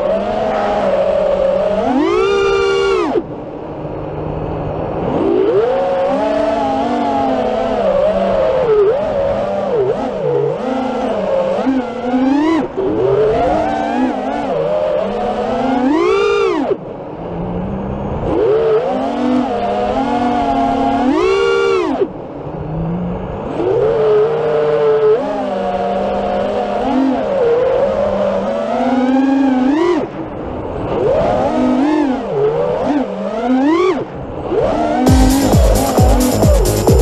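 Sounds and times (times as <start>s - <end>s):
quadcopter motors whining: 0.0s - 37.0s
electronic music: 35.0s - 37.0s.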